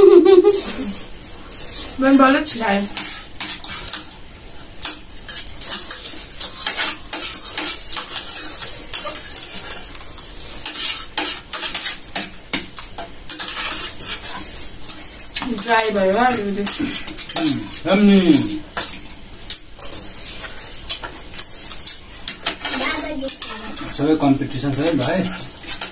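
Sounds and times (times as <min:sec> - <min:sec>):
plates and cutlery clinking: 0:15.0 - 0:20.1.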